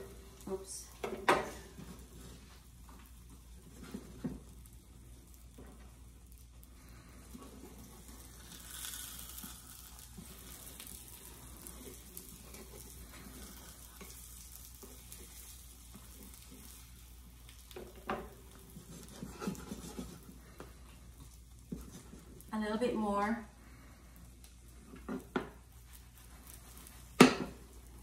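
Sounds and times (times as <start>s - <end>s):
omelet frying in skillet: 0.0s - 28.0s
spatula scraping pan: 7.0s - 22.5s.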